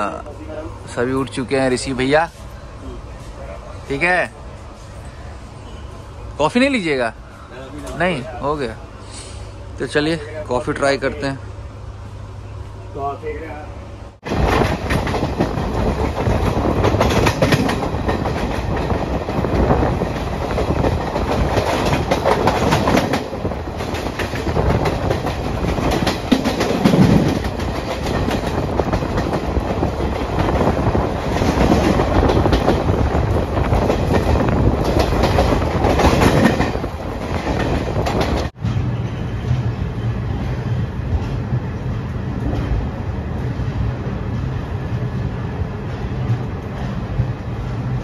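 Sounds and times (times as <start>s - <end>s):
train wheels on rails: 14.2s - 48.0s.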